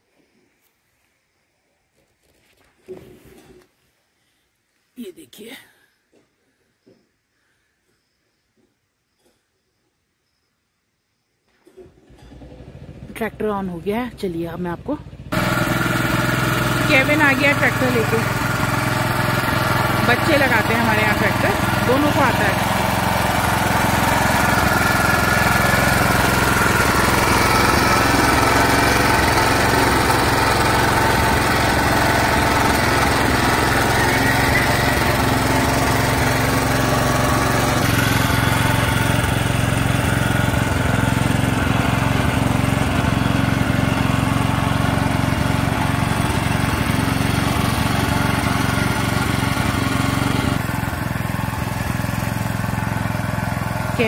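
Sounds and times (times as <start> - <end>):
tractor engine running: 11.9 - 54.0.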